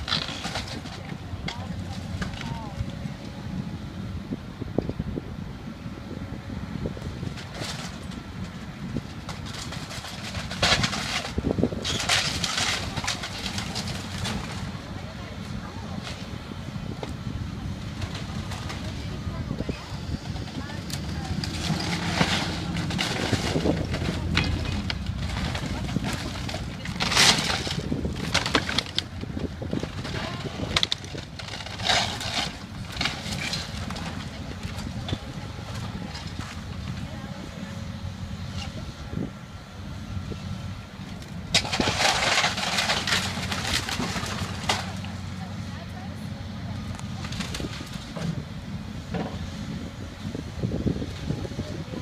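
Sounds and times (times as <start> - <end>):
timber cracking and splintering: 0.0 - 2.6, 9.2 - 14.8, 20.8 - 36.7, 41.2 - 45.2
demolition machinery rumbling: 0.0 - 52.0.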